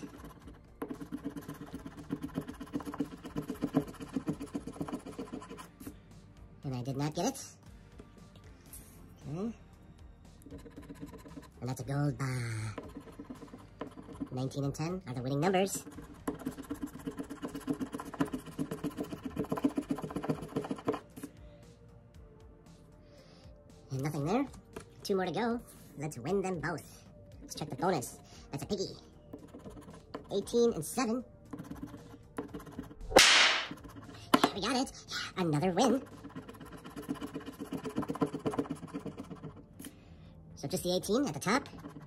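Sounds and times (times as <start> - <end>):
coin scratching lottery ticket: 0.0 - 5.9, 10.4 - 11.6, 12.6 - 21.1, 28.6 - 34.8, 35.4 - 39.6, 41.0 - 42.0.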